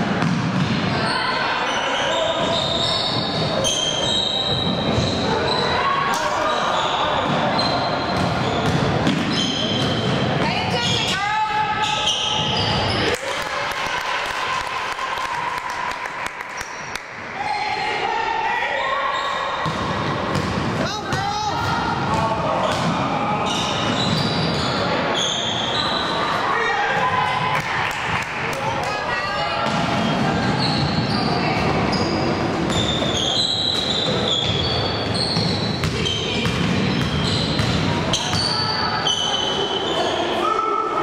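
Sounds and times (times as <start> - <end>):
gym background noise: 0.7 - 14.6, 15.8 - 41.0
sneakers squeaking on hardwood floor: 1.7 - 5.8, 6.5 - 11.2, 11.8 - 13.1, 22.7 - 26.3, 29.7 - 40.3.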